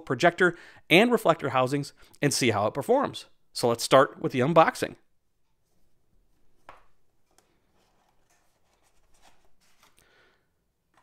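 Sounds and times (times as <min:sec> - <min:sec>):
soft rubbing of cardboard box: 0:07.7 - 0:09.9.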